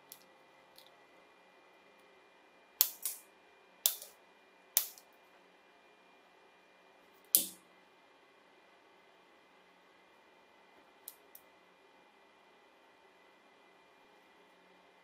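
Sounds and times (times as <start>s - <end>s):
lighter struck and lighting: 2.8s - 3.2s, 3.8s - 4.2s, 4.8s - 5.0s, 7.4s - 7.6s.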